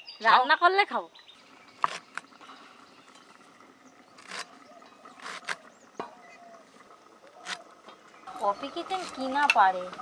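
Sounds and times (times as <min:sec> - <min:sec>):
knife cutting leafy shoots: 0:05.2 - 0:05.6.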